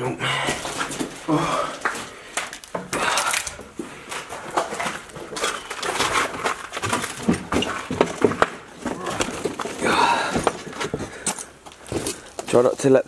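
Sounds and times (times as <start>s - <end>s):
footsteps: 0.4s - 12.8s
knocks and thumps: 6.0s - 11.3s.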